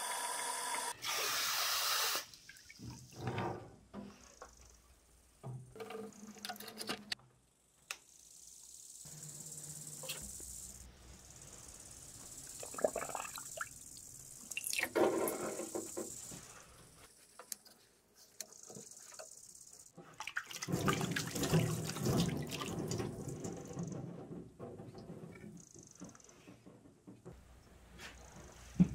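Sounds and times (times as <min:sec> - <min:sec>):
water dripping and splashing: 0:02.2 - 0:03.2, 0:12.5 - 0:15.0, 0:20.2 - 0:24.0.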